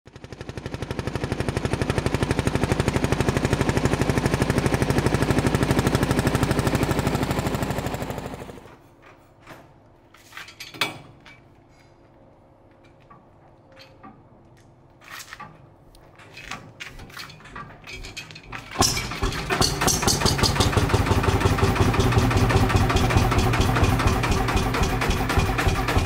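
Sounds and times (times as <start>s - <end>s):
tractor engine thudding: 15.3s - 26.0s.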